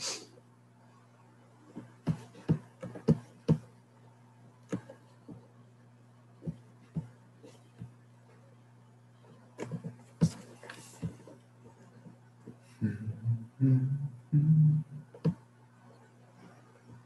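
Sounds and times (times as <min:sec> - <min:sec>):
low electrical hum: 0:00.0 - 0:17.0
computer clicks and taps: 0:04.6 - 0:05.4.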